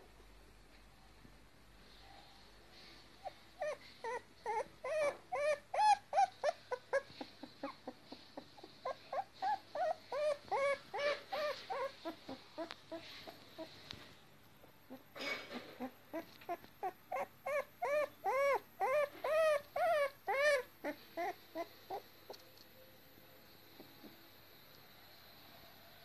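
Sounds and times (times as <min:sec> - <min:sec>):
puppy whimpering: 0:03.2 - 0:13.9, 0:14.8 - 0:22.4.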